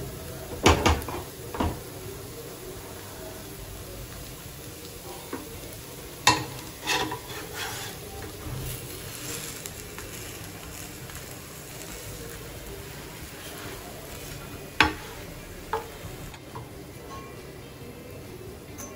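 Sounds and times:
faint frying sizzle: 0.0 - 18.9
spatula scraping and tapping pan: 6.3 - 9.8, 13.4 - 17.3.

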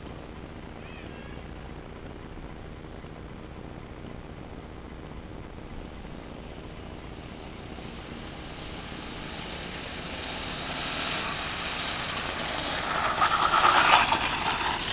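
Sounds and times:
go-kart engine running: 5.7 - 14.9.

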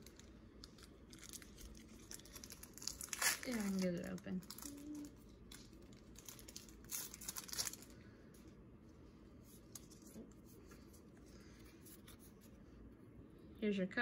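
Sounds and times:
foil wrapper tearing and crinkling: 0.0 - 8.0.

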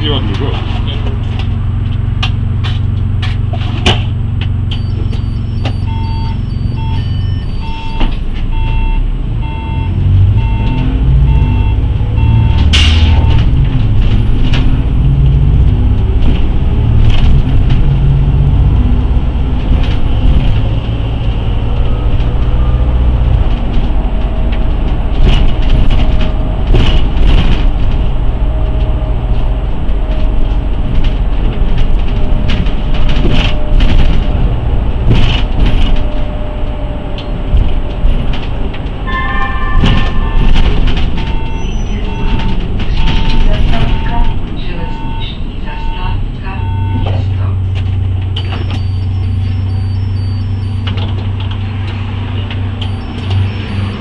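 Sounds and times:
bodywork rattles and knocks: 0.0 - 6.0, 12.2 - 39.1, 39.8 - 44.6
bus engine accelerating: 0.0 - 54.0
warning beeper: 4.7 - 13.4, 39.1 - 47.4.

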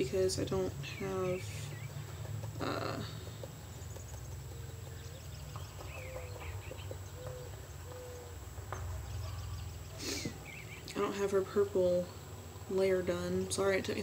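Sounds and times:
steady low hum: 0.0 - 14.0
high bird chirps: 0.8 - 2.3, 2.9 - 8.4, 9.0 - 11.0
bird cooing: 4.3 - 10.8.

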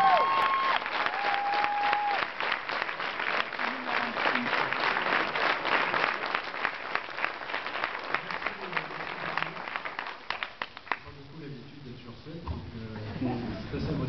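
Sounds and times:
audience applauding: 0.0 - 11.1.

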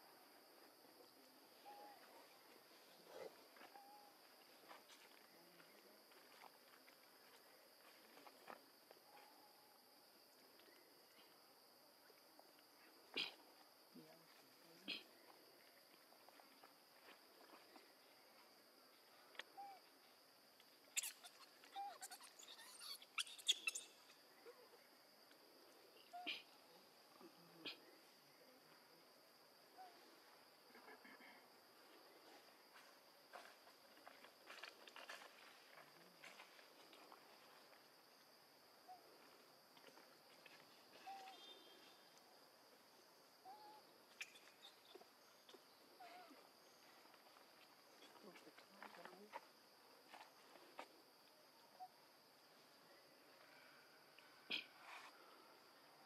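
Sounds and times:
insect drone: 0.0 - 56.0
short squeaks: 21.0 - 24.0.

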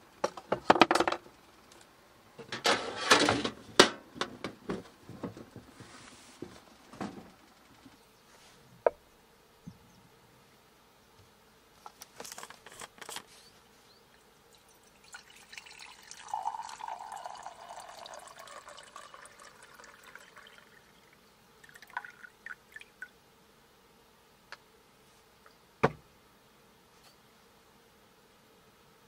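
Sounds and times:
water pouring into metal pot: 14.5 - 23.0.

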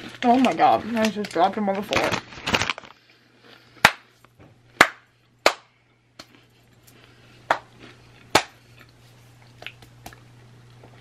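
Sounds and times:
rice cakes tapping on floor: 7.5 - 7.7.

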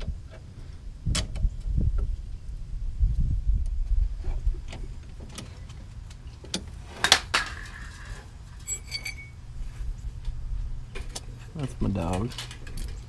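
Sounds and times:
short metallic ringing: 8.6 - 9.4.

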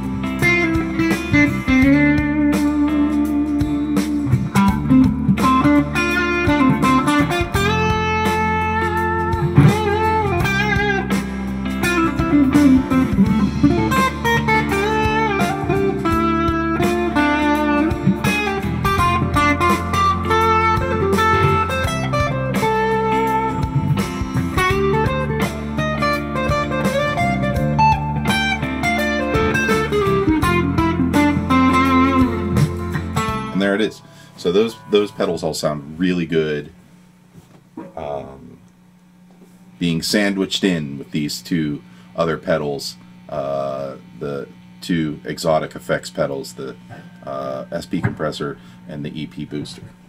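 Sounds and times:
overdriven electric guitar lead: 0.0 - 35.5
backing track bass line: 0.0 - 50.0.

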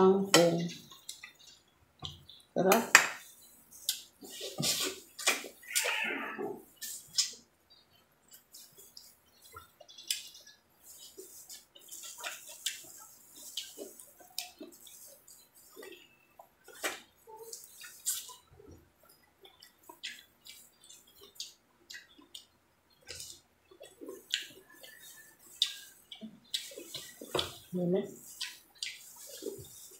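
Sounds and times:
wet chewing and mouth smacking: 0.4 - 2.5, 3.2 - 29.9
shrimp peeling clicks and crackles: 8.2 - 15.2.

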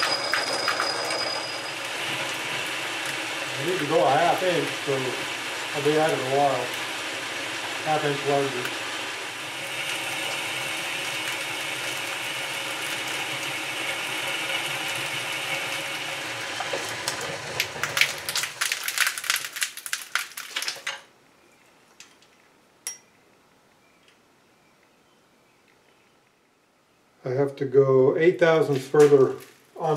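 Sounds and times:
metal lathe cutting steel: 0.0 - 17.8.

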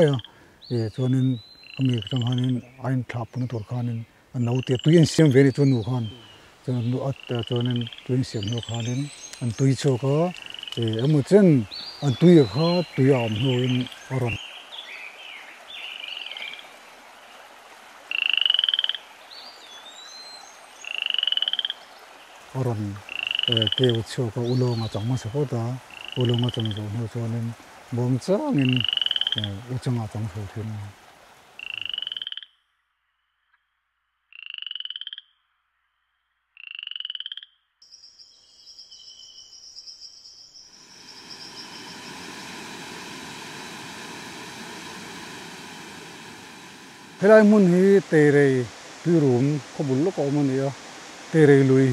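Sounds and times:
frog calling: 0.0 - 2.9, 4.4 - 16.7, 18.1 - 30.2, 31.5 - 32.7, 34.3 - 35.5, 36.5 - 51.9
waterfall rushing: 7.3 - 18.1, 40.7 - 51.9.

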